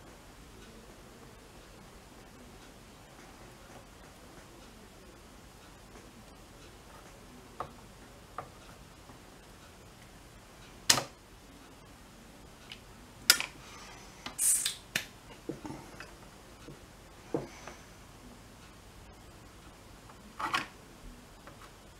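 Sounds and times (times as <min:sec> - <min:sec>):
brief hiss: 0:14.4 - 0:14.8.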